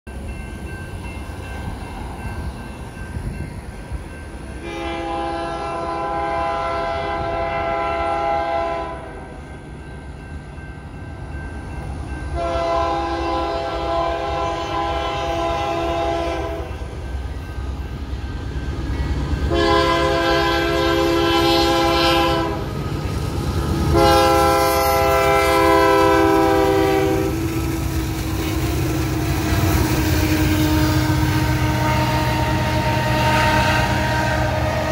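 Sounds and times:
diesel train rumble: 0.1 - 34.9
locomotive air horn blasts: 4.6 - 9.2, 12.4 - 16.9, 19.5 - 22.8, 23.8 - 27.6, 28.2 - 34.9.

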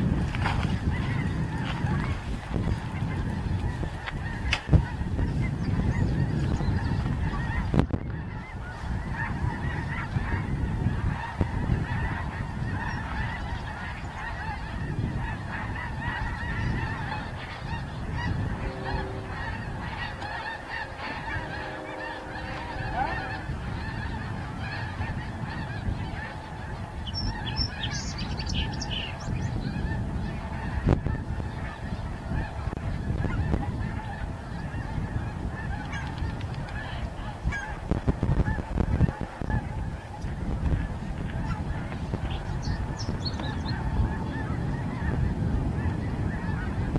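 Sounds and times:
geese honking: 0.8 - 46.9
low rumble: 17.8 - 25.2.

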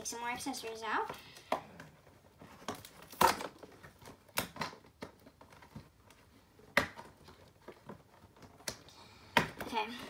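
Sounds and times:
packaging crackling and snapping: 2.4 - 8.9.

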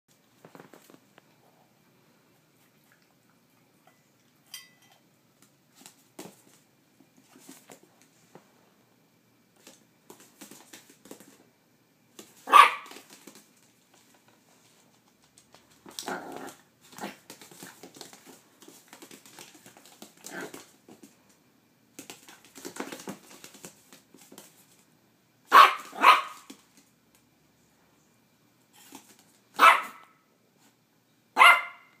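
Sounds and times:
puppy barking: 12.4 - 13.0, 25.5 - 26.5, 29.6 - 30.2, 31.4 - 32.0.

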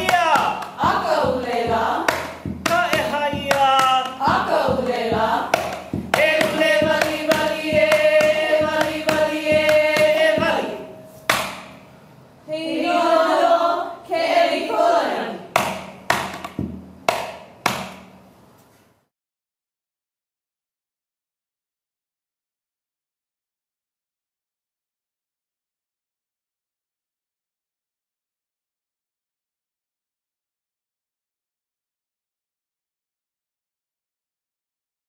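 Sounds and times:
gourd drum strikes: 0.0 - 11.9, 15.5 - 18.3.

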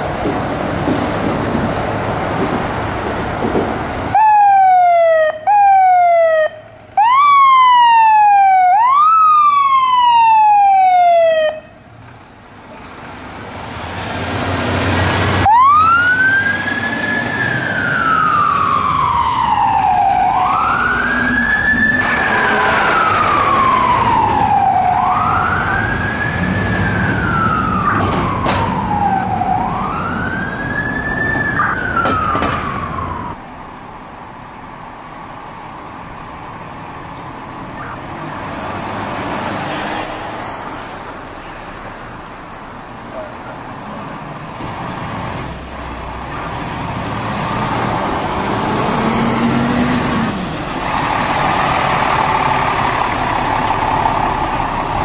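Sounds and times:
fire engine siren: 4.1 - 11.9, 13.9 - 33.4, 37.6 - 38.5, 45.9 - 55.0.

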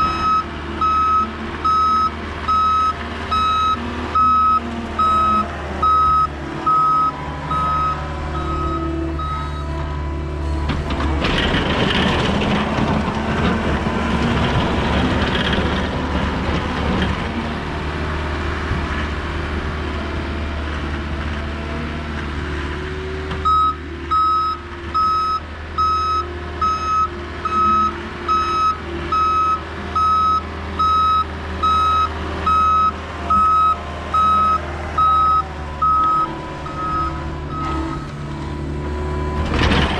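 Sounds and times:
engine drone: 0.0 - 39.9
backup alarm beeping: 0.1 - 9.7, 27.8 - 38.1
machine rushing and scraping: 5.4 - 17.4, 35.7 - 39.9.

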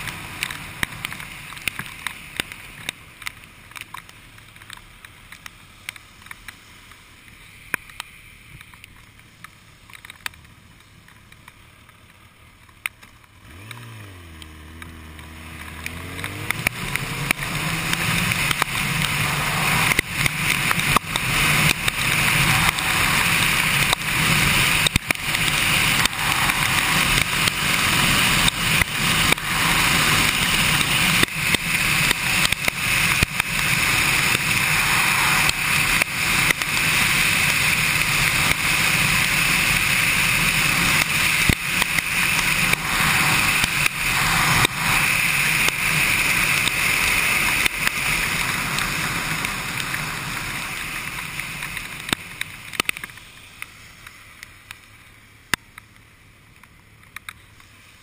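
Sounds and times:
raindrops ticking on camera: 0.0 - 57.9
tyre hiss on wet road: 0.0 - 58.0
motorcycle engine revving: 13.3 - 53.2
wind rush: 16.3 - 51.4.

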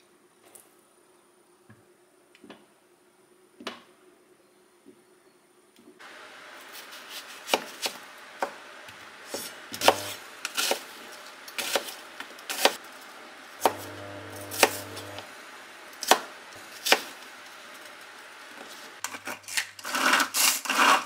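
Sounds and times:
knife chopping on cutting board: 9.3 - 10.8, 13.6 - 15.2.

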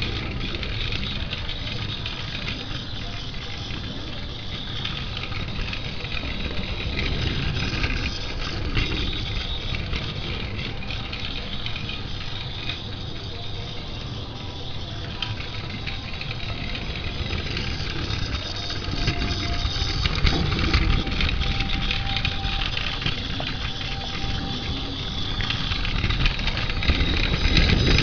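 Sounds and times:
small motor whirring: 0.0 - 28.0
toy wheels rattling on rails: 0.0 - 28.0.

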